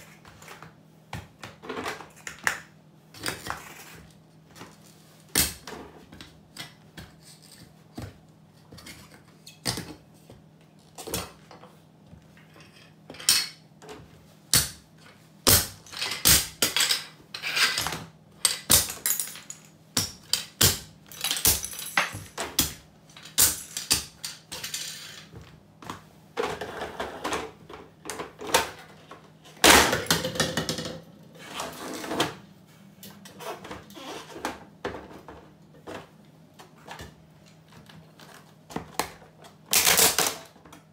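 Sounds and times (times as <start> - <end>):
pieces clattering on tile floor: 12.4 - 13.6, 15.8 - 25.4, 29.6 - 32.3
boots stamping on plastic toys: 20.0 - 24.2.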